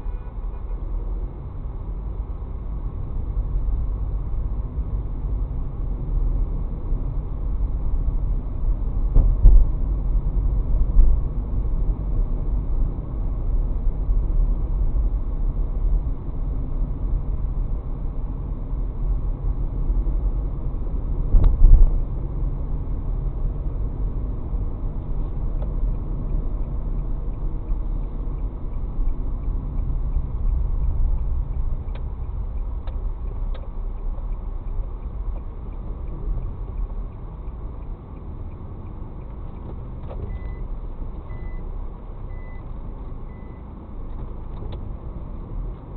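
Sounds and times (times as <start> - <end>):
car road and engine noise: 0.0 - 45.9.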